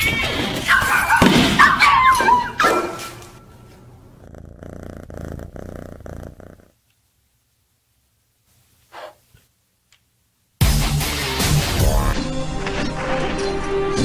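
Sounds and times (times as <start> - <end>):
cat purring: 3.5 - 6.9.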